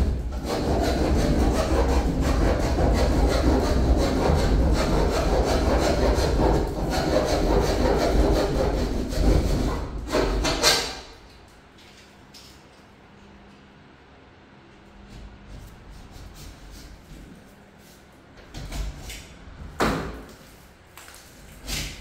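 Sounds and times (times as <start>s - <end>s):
power saw cutting: 0.2s - 11.0s.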